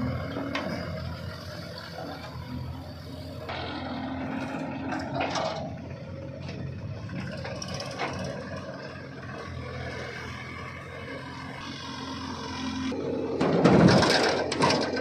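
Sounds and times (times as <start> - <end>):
diesel engines running: 0.0 - 15.0
metal clanks and scrapes: 4.2 - 8.6, 13.4 - 15.0.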